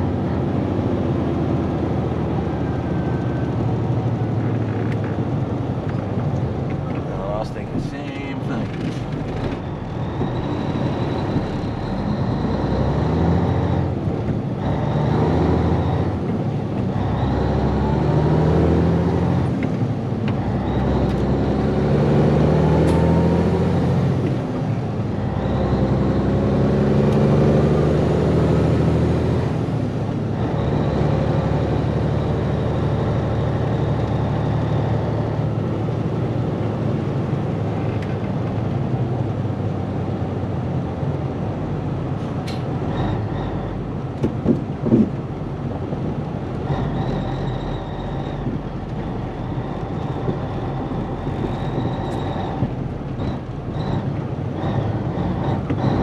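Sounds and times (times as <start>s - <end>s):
diesel truck engine accelerating: 0.0s - 56.0s.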